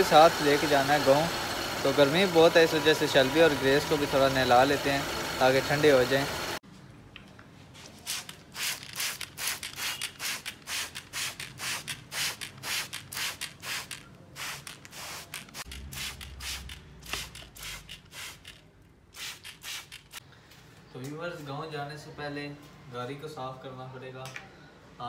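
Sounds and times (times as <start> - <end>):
spray bottle squirting: 8.1 - 20.2.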